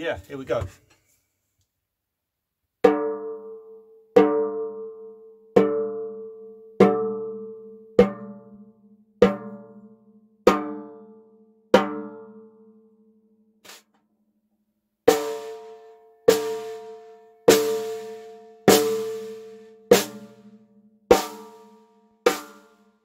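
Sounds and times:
snare drum strokes ringing: 0:13.6 - 0:13.9.

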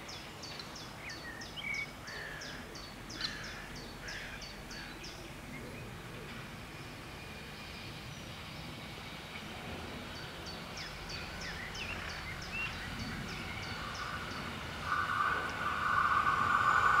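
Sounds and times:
distant diesel train rumble: 0:00.0 - 0:17.0
gliding bird calls: 0:10.6 - 0:17.0.

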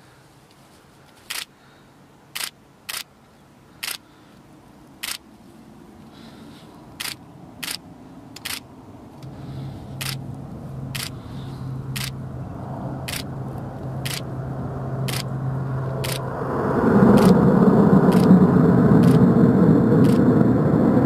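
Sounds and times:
camera shutter clicks: 0:01.3 - 0:01.5, 0:02.4 - 0:03.1, 0:03.8 - 0:04.0, 0:05.0 - 0:05.2, 0:07.0 - 0:07.8, 0:08.4 - 0:08.6, 0:10.0 - 0:10.2, 0:11.0 - 0:11.2, 0:12.0 - 0:12.2, 0:13.1 - 0:13.3, 0:14.0 - 0:14.2, 0:15.1 - 0:15.3, 0:16.0 - 0:16.2, 0:18.1 - 0:18.3
turboprop engines droning: 0:03.7 - 0:21.0.

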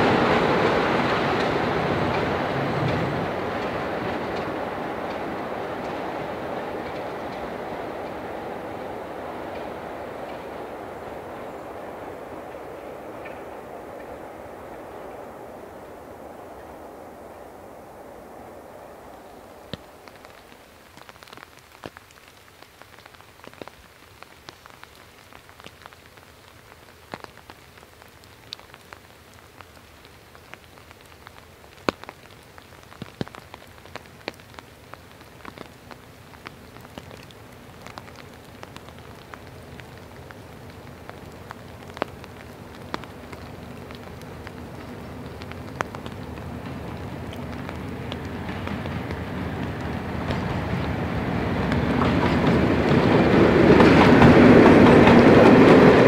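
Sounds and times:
diesel train engine hum: 0:00.0 - 0:21.1, 0:37.4 - 0:56.0
rain falling: 0:00.0 - 0:56.0
raindrops ticking close by: 0:00.0 - 0:56.0.

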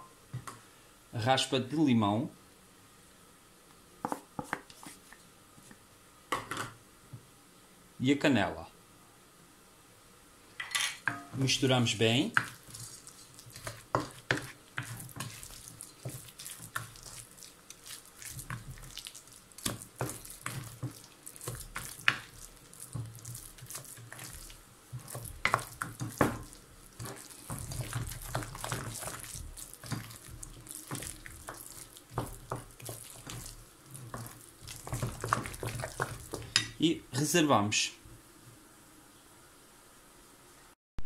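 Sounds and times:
spoon stirring thick mixture: 0:11.2 - 0:36.9.

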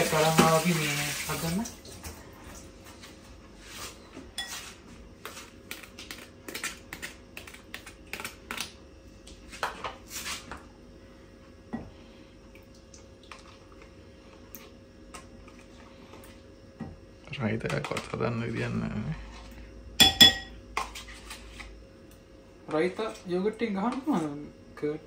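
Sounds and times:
spoon and containers clinking: 0:04.4 - 0:04.7, 0:20.0 - 0:21.0.

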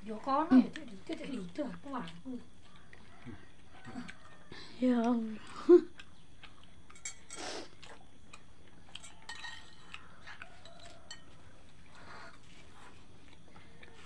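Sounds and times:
metal spoon scraping ceramic plate: 0:09.0 - 0:09.9.

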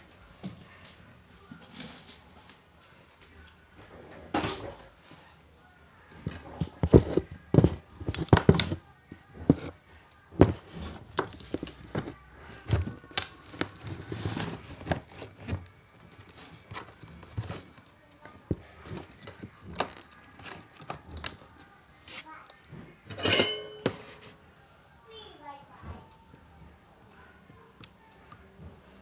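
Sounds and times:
handling knocks and taps: 0:06.2 - 0:08.8, 0:10.4 - 0:15.7.

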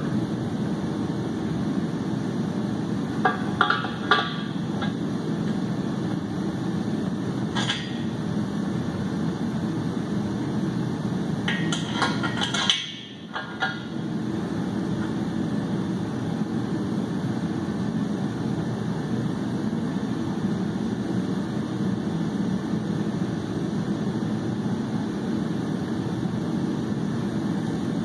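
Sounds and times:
steady low hum: 0:00.0 - 0:28.0
metal clanks and knocks: 0:03.2 - 0:05.0, 0:07.5 - 0:08.1, 0:11.5 - 0:13.9.

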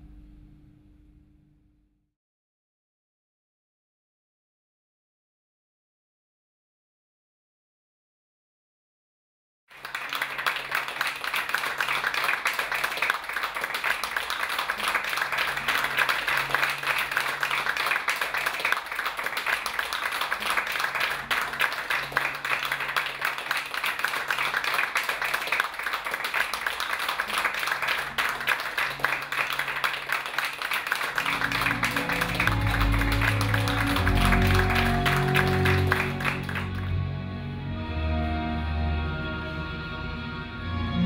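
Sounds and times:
audience applauding: 0:09.7 - 0:37.2.

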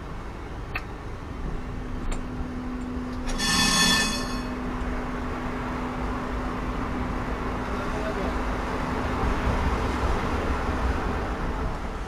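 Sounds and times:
tram drive humming: 0:02.4 - 0:07.7
bright ringing tone: 0:03.3 - 0:04.7.

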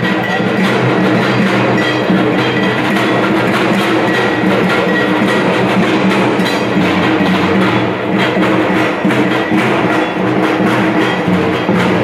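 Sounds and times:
barrel drum beaten with sticks: 0:00.0 - 0:12.0.

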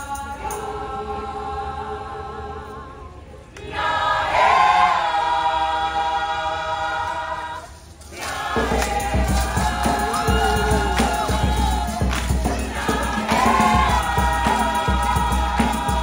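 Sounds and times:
choir singing in harmony: 0:00.0 - 0:16.0
low thuds beat: 0:08.6 - 0:16.0.

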